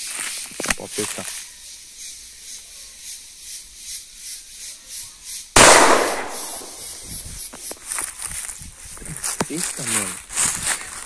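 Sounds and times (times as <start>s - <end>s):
shotgun shot: 5.6s - 7.0s.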